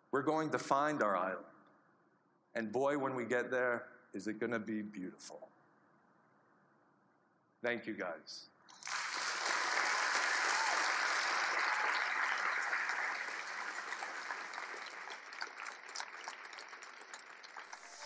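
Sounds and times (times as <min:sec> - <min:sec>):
audience applauding: 0:08.7 - 0:18.0.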